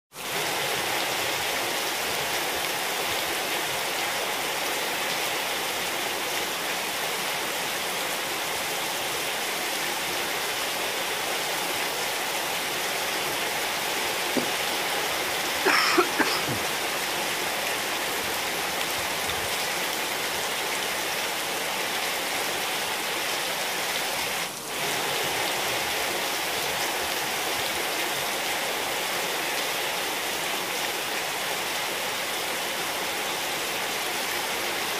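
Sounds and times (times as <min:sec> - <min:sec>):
rain falling on tiles: 0:00.1 - 0:34.9
knocks: 0:14.4 - 0:14.6.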